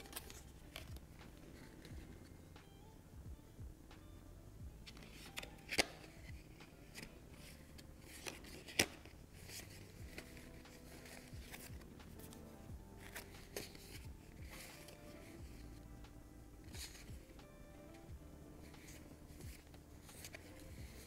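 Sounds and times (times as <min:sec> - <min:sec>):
playing cards flicking and snapping: 0:00.0 - 0:02.2, 0:04.8 - 0:15.7, 0:16.6 - 0:18.0, 0:18.6 - 0:21.0
quiet background music: 0:00.0 - 0:21.0.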